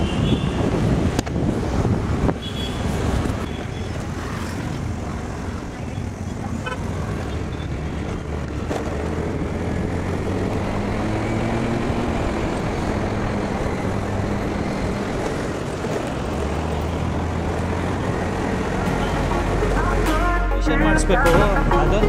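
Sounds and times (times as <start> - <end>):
wind and road noise: 0.0 - 20.1
scooter engine running: 3.5 - 19.4.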